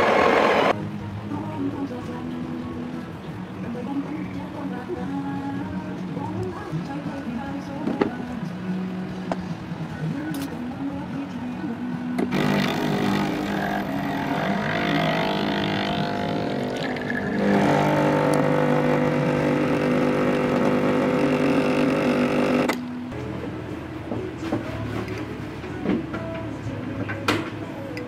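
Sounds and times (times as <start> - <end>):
espresso machine pump humming: 0.0 - 0.7, 13.8 - 22.7.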